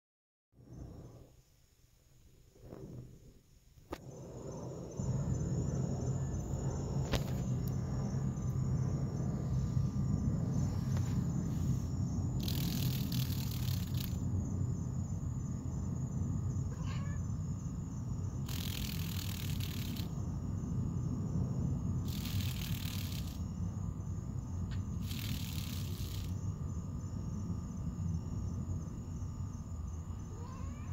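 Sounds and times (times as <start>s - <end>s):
crickets chirping: 0.6s - 30.9s
bursts of hissy noise: 25.0s - 26.4s.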